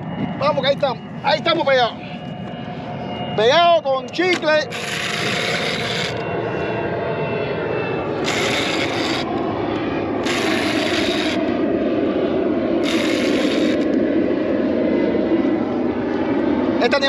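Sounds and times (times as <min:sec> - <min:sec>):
low drone: 0:00.0 - 0:17.0
fishing reel grinding: 0:04.7 - 0:06.3, 0:08.2 - 0:09.4, 0:10.2 - 0:11.4, 0:12.8 - 0:14.0.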